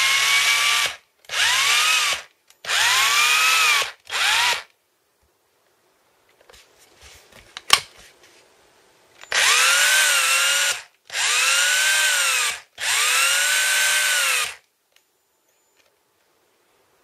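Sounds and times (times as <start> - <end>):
cordless drill motor whine: 0.0 - 4.7, 9.3 - 14.6.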